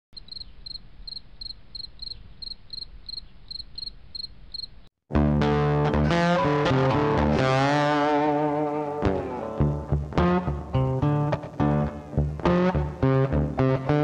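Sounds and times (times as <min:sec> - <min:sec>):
high repeated chirps: 0:00.2 - 0:04.8
distorted electric guitar music: 0:05.1 - 0:14.0.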